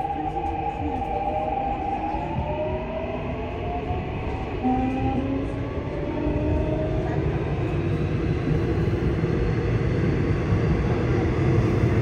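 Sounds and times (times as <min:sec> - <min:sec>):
subway car rumbling: 0:00.0 - 0:12.0.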